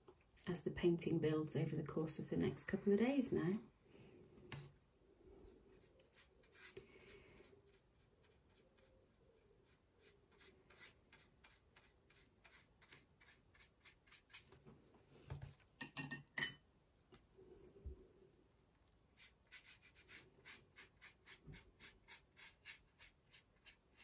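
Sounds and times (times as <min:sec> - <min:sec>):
paintbrush strokes on paper: 0:05.4 - 0:14.6, 0:19.1 - 0:24.0.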